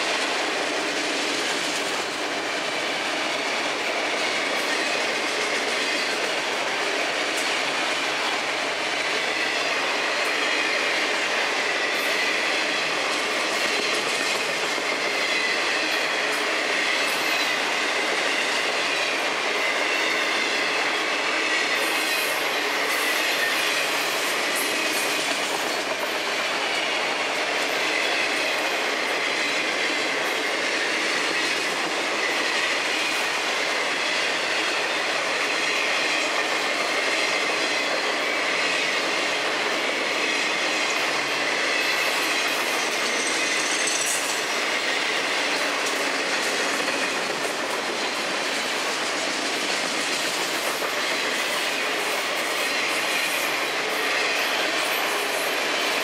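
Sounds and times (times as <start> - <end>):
train wheels on rail: 0.0 - 56.0.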